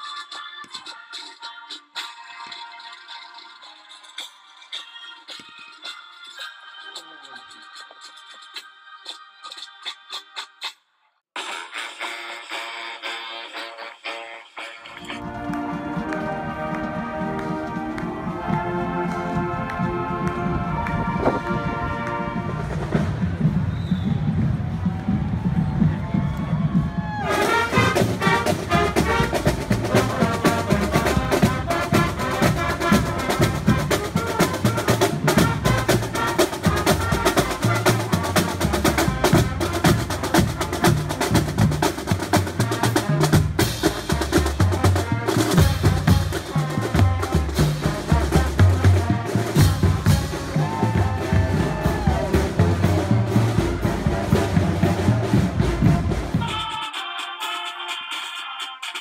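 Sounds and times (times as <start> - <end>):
marching band playing: 14.9 - 59.0
drumline drumming: 15.0 - 56.8.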